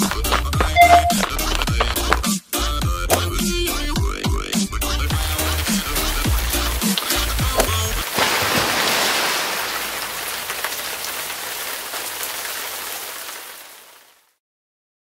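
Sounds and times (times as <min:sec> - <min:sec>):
steady rain-like hiss: 0:05.1 - 0:14.4.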